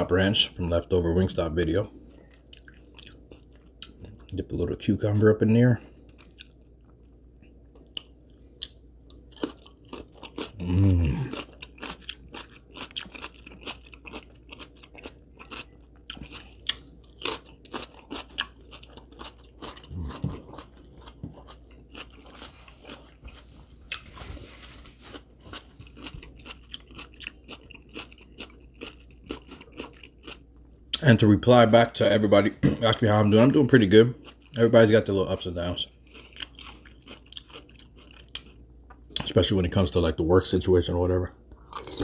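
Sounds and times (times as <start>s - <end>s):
chewing crunchy cucumber: 2.3s - 4.8s, 5.8s - 24.4s, 25.0s - 31.0s, 33.6s - 39.4s, 41.6s - 42.0s
person humming: 10.6s - 11.3s.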